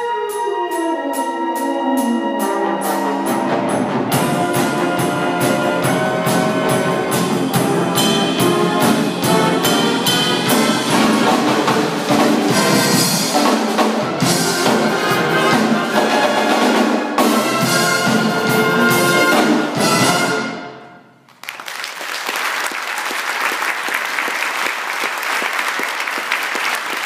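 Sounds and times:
wind band playing rock piece: 0.0s - 21.1s
audience applause: 21.3s - 27.0s.

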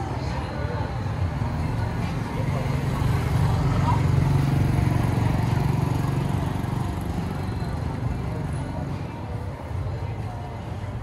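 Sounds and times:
street noise: 0.0s - 11.0s
motor scooter engine passing: 2.1s - 8.4s.

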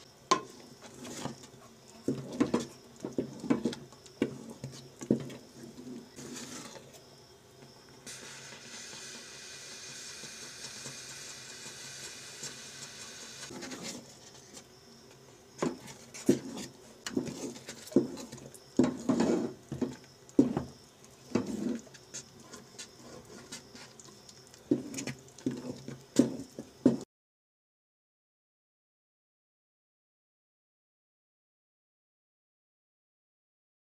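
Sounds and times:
steady hiss: 0.0s - 26.8s
spoon stirring thick paste in pot: 0.3s - 7.0s, 10.0s - 14.7s, 15.6s - 27.0s.

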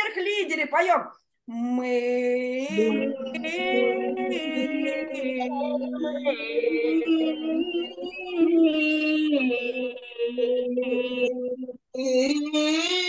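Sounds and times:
women singing held notes: 2.0s - 11.8s.

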